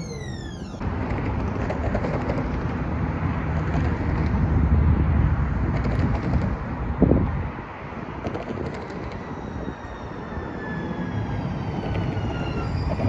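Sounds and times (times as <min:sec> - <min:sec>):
road traffic rumble: 0:00.0 - 0:13.0
wind on microphone: 0:03.7 - 0:13.0.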